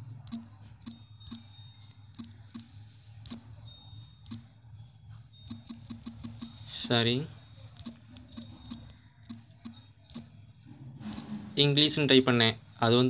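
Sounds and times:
phone keyboard clicks: 0.2 - 3.5, 5.5 - 6.7, 7.8 - 10.4.

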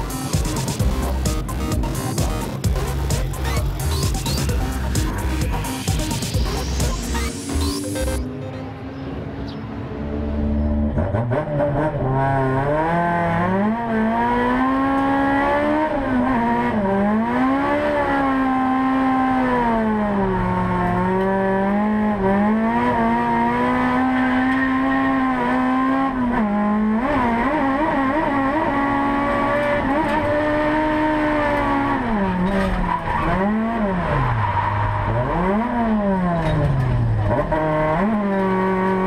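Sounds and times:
car engine revving hard: 10.9 - 39.0.

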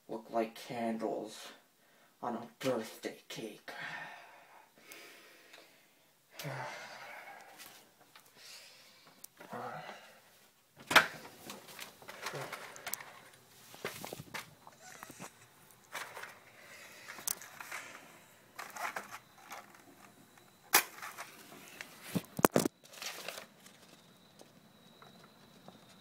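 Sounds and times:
paper photo rustling: 10.8 - 24.1.

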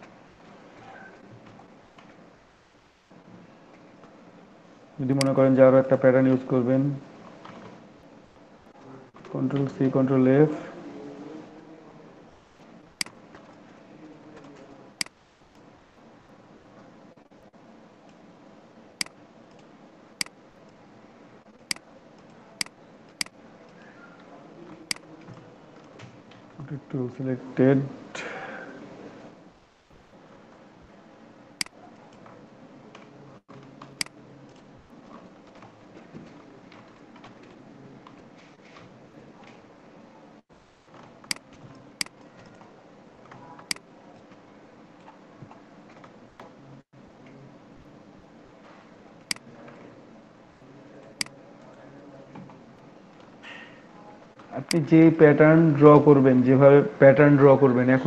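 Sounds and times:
faint room noise: 0.0 - 58.0
computer mouse clicks: 31.6 - 38.2.

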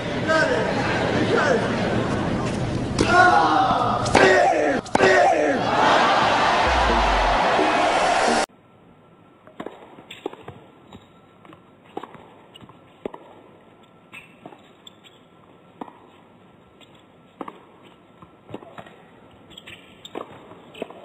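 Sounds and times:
hushed indoor crowd: 5.6 - 8.5
shoe squeaks: 14.1 - 15.4, 19.4 - 21.0.

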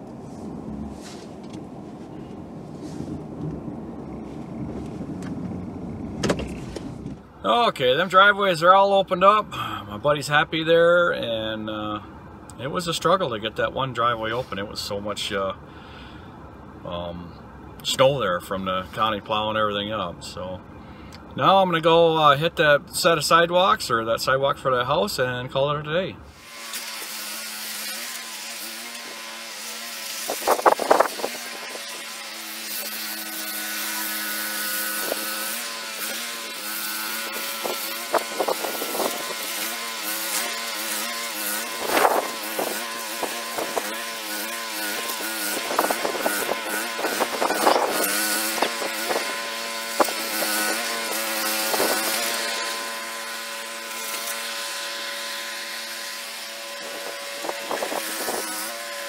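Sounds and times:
snowblower engine running: 3.7 - 6.8, 26.3 - 59.0.

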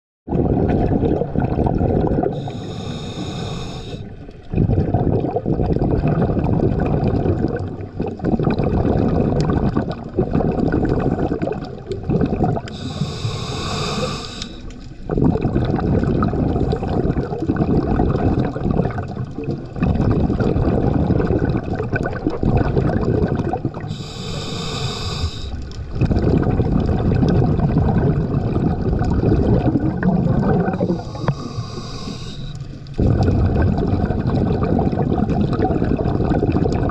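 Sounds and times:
rumbling exhaust bubbles: 0.3 - 3.3, 4.4 - 14.1, 15.0 - 36.9
scuba regulator hissing inhale: 2.4 - 4.1, 12.7 - 14.7, 23.9 - 25.6, 30.7 - 32.7.

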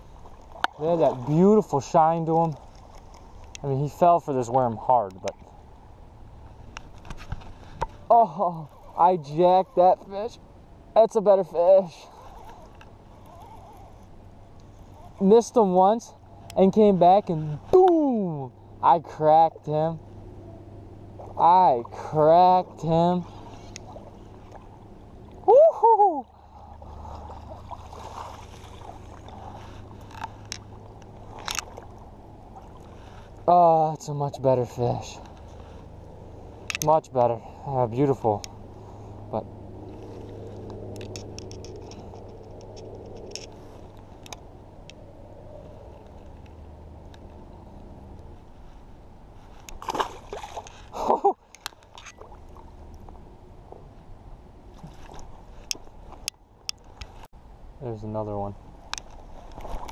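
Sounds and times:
river water sloshing and splashing: 0.0 - 18.2, 20.9 - 33.4, 37.5 - 54.0, 54.6 - 57.3, 58.6 - 59.9
steady low rumble: 0.0 - 59.9
fish splashing in water: 26.4 - 33.0, 49.7 - 51.1.

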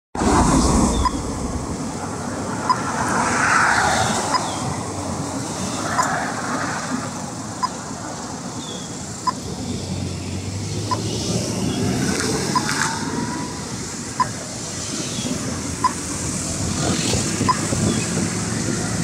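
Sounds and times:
passing traffic: 0.2 - 19.0
crossing signal beeps: 14.2 - 14.4.

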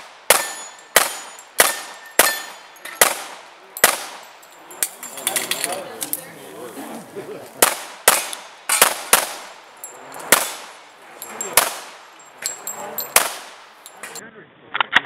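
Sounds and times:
pistol shots: 0.0 - 4.4, 7.6 - 12.1, 13.0 - 14.2
casings clinking on pavement: 0.3 - 6.3, 7.4 - 14.2.

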